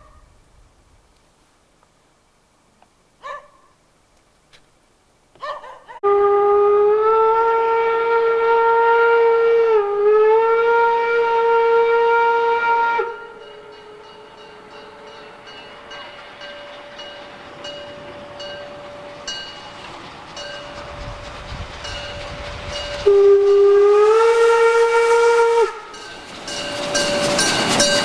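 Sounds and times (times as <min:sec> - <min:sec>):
steam locomotive whistle: 0:06.0 - 0:19.4, 0:20.7 - 0:28.0
faint train running: 0:07.0 - 0:28.0.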